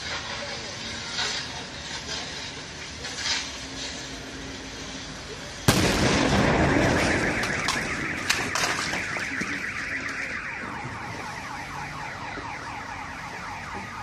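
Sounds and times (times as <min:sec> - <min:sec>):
car alarm chirping: 0:06.4 - 0:14.0.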